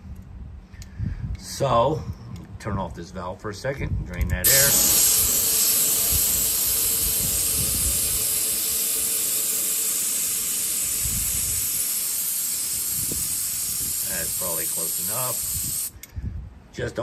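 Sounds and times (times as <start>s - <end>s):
compressed air hissing from hose: 4.4s - 16.1s.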